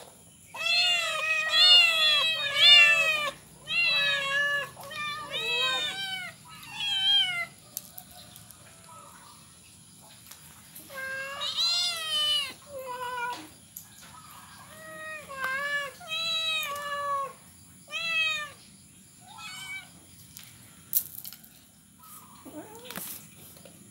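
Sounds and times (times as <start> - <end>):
young cats meowing: 0.5 - 7.6, 10.8 - 13.6, 14.6 - 18.6, 19.2 - 20.0, 22.3 - 23.3.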